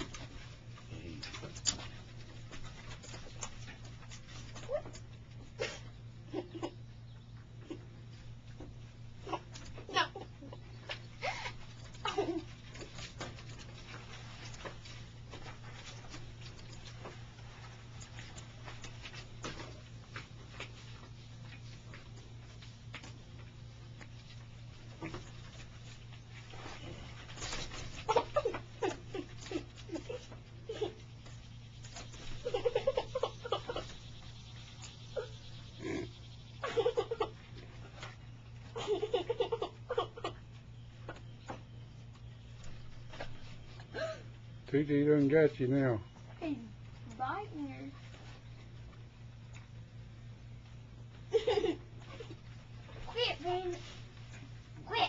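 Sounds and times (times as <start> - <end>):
animals play-fighting vocal noises: 0.0 - 16.5, 24.2 - 42.2.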